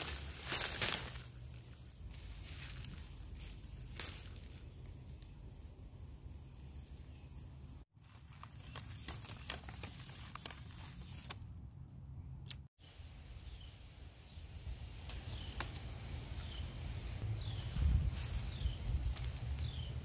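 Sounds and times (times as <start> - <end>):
leaves and stems rustling: 0.0 - 11.5, 12.9 - 20.0
dry leaves and stems crackling: 0.0 - 11.7, 14.3 - 20.0
stem snapping: 3.5 - 5.4
paper bag crinkling: 8.0 - 11.4.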